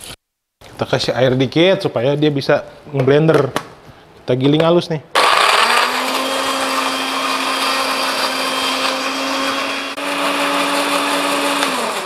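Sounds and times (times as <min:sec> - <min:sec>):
electric blender running: 0:05.2 - 0:12.0.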